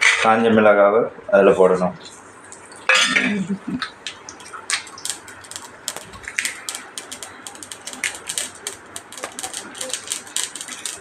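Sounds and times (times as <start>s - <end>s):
mustard seeds popping in hot oil: 4.0s - 11.0s.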